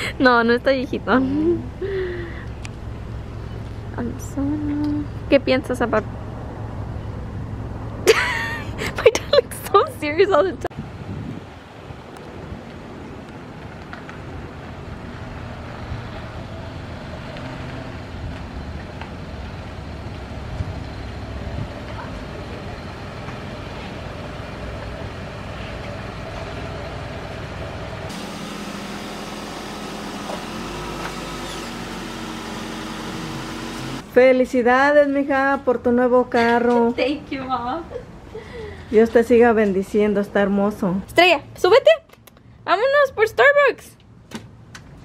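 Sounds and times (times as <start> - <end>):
car engine and tyre rumble: 0.0 - 8.1, 8.7 - 34.1.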